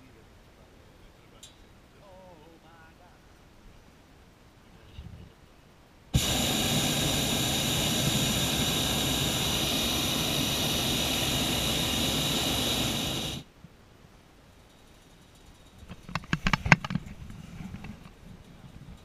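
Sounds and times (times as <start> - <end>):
propane burner roaring: 6.2 - 13.5.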